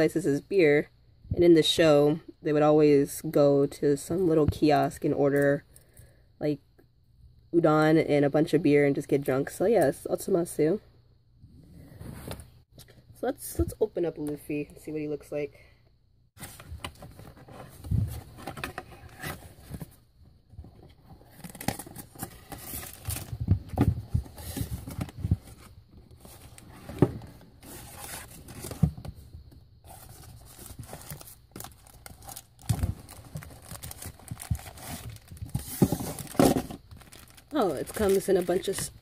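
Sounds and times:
packaging rustling and tearing: 21.2 - 23.7, 29.9 - 39.0.

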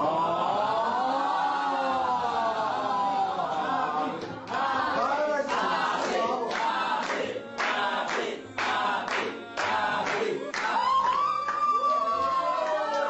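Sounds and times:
group of voices singing: 0.0 - 11.6
hand claps: 4.1 - 11.9.

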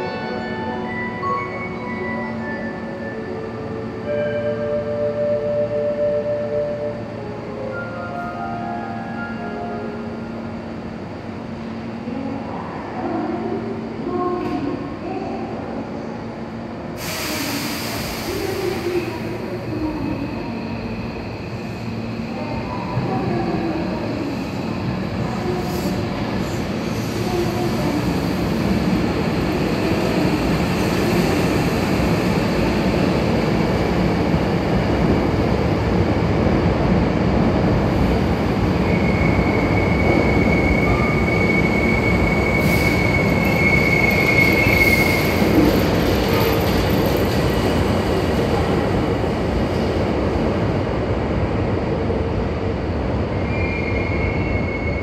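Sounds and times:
electric train running past: 16.3 - 55.0.

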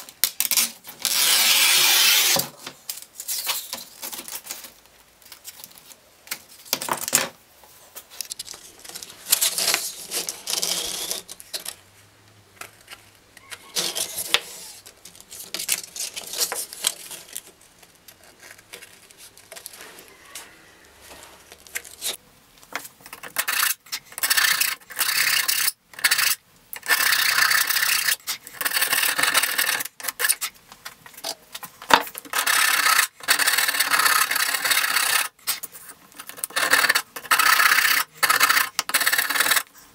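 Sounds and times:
hand rasp scraping sandpaper: 1.0 - 2.4, 9.5 - 11.3, 23.4 - 30.5, 32.3 - 39.7
paper rustling: 7.7 - 11.8, 12.6 - 22.2.

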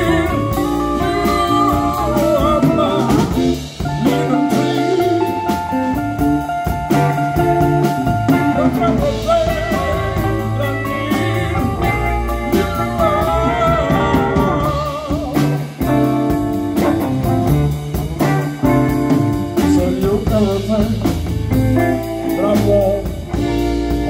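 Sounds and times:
male singer: 0.0 - 6.0, 8.1 - 15.8, 19.5 - 21.3, 22.2 - 23.5
bass guitar: 0.0 - 24.0
drum kit beat: 0.0 - 24.0
electric guitar: 0.0 - 24.0.

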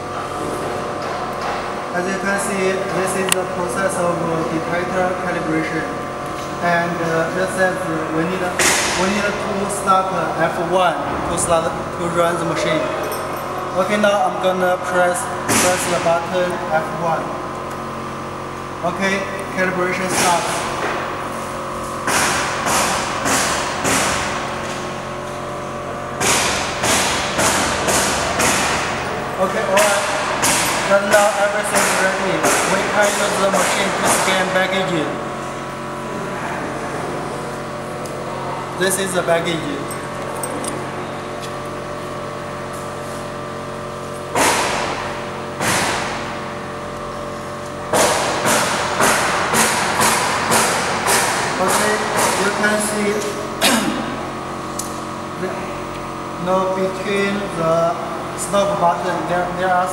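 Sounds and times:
x-ray scanner humming: 0.0 - 59.9
sharp noisy knocks: 8.4 - 9.4, 10.9 - 13.6, 15.4 - 16.2, 20.0 - 21.2, 22.0 - 24.8, 26.2 - 34.5, 44.3 - 46.4, 47.9 - 52.8, 53.6 - 54.2.

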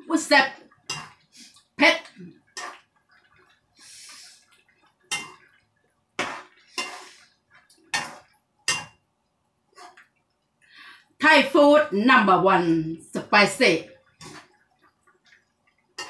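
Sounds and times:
metal spoon scraping frying pan: 6.2 - 8.9.

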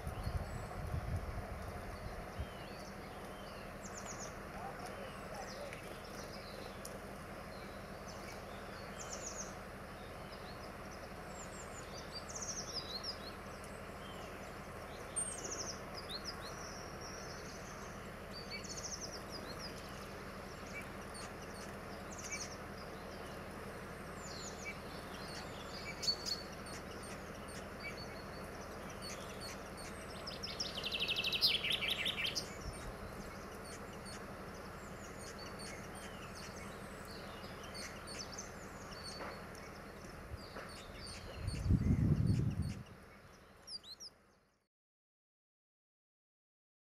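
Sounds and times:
songbirds chirping: 0.0 - 44.7
bird trilling: 24.0 - 44.1.

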